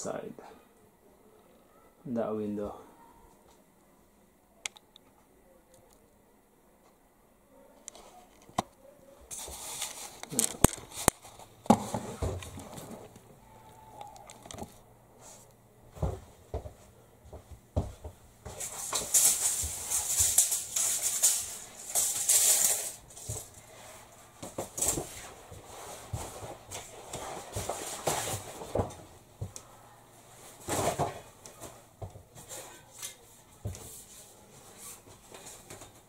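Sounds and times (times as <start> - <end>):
fabric blind rustling: 9.3 - 13.2, 18.4 - 29.0.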